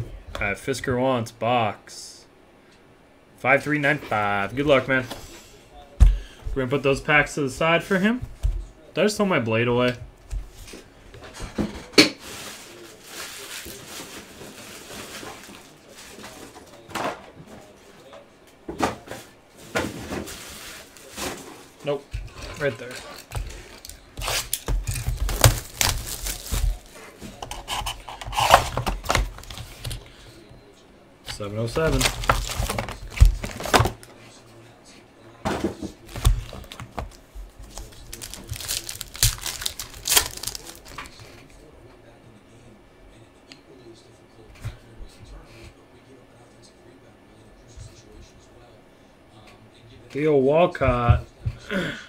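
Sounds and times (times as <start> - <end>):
wrapper crinkling: 12.2 - 16.2, 23.1 - 26.9, 31.8 - 34.0, 36.1 - 41.2
low rustling of card packs: 12.2 - 16.8, 22.6 - 27.0, 31.3 - 34.1, 36.0 - 41.4.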